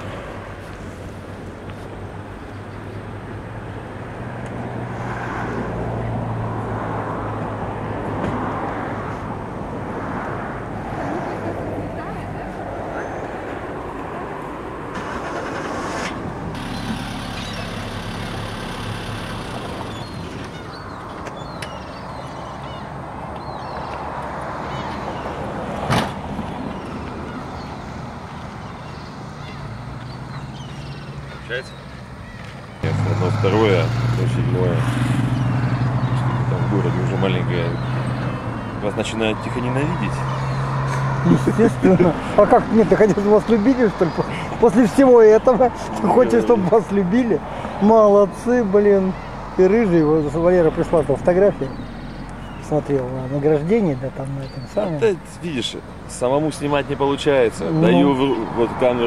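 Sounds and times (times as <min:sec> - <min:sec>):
low engine hum: 0:13.5 - 0:21.0.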